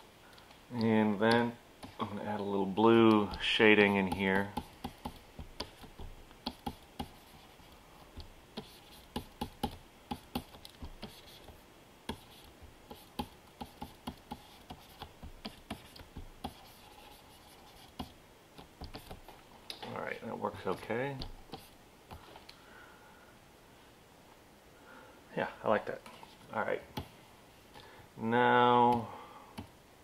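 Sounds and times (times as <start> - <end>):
pen stylus tapping: 3.0 - 7.2, 8.2 - 11.2.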